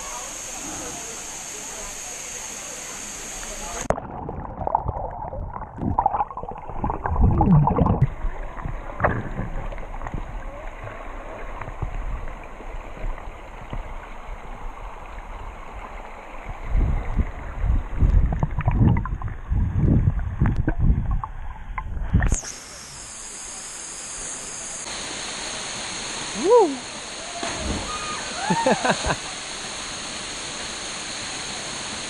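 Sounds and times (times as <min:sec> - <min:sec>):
muffled underwater rumble: 0:03.8 - 0:15.5, 0:16.4 - 0:22.4
water bubbling and sloshing: 0:03.9 - 0:22.4.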